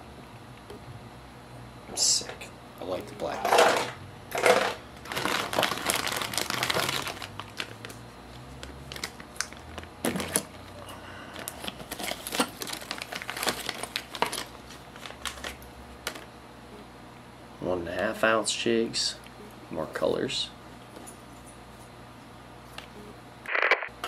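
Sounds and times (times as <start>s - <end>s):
plastic bags crinkling: 3.4s - 10.5s, 11.4s - 16.3s.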